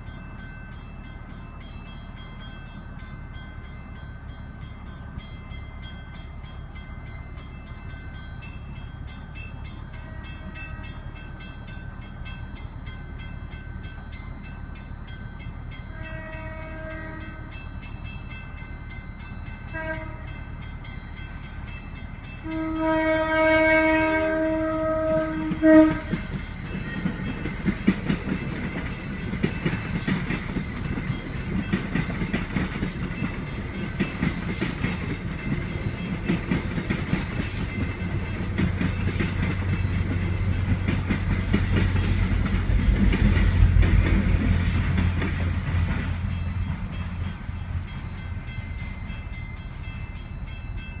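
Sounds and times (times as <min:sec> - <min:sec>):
diesel locomotive engine rumble: 0:00.0 - 0:51.0
train wheels clattering over joints: 0:23.8 - 0:47.2.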